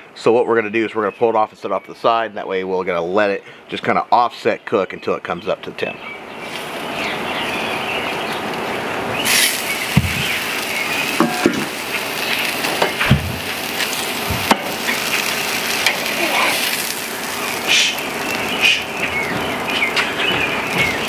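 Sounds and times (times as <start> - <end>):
steak sizzling on a grill: 6.3 - 21.0.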